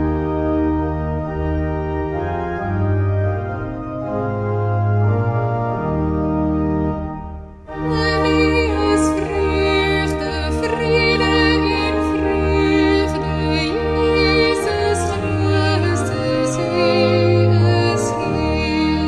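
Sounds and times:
pipe organ chords: 0.0s - 19.0s
singing a hymn: 7.7s - 19.0s.

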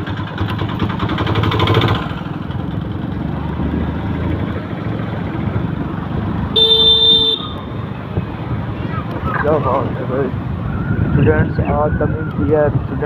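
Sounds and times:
motorcycle engine running: 0.0s - 9.2s.

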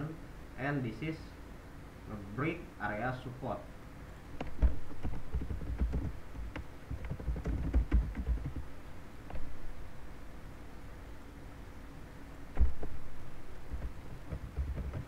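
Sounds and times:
typing on computer keyboard: 4.9s - 8.7s, 13.7s - 15.0s.

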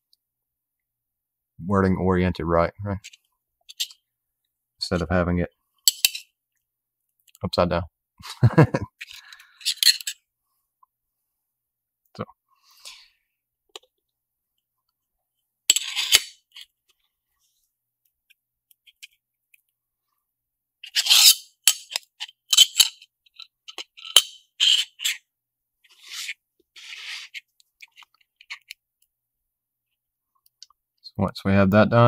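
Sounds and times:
metal parts scraping: 3.0s - 4.0s, 9.0s - 10.2s, 15.7s - 16.7s, 20.8s - 25.2s, 25.9s - 28.7s.

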